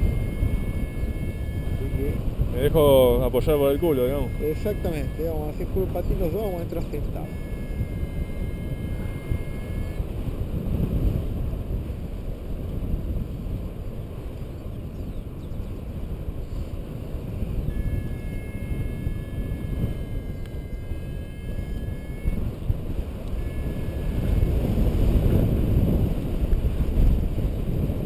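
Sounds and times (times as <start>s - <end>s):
faint steady electronic tone: 0.0s - 10.2s, 17.6s - 25.8s
wind buffeting microphone: 0.0s - 28.0s.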